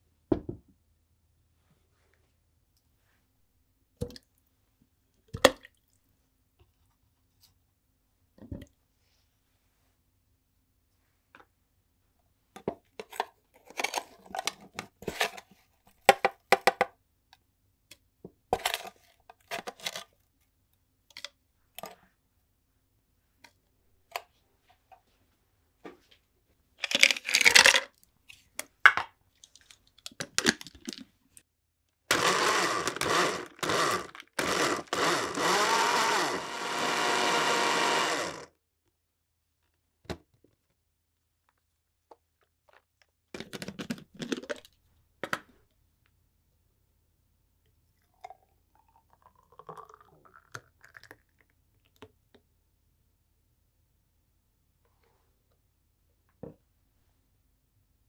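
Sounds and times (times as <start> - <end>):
electric blender running: 32.1 - 38.5.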